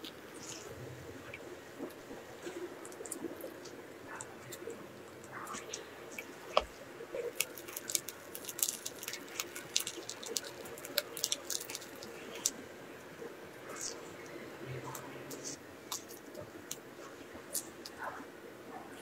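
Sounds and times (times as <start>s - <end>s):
soft squishing: 0.0s - 19.0s
plastic crackling clicks: 7.3s - 12.5s.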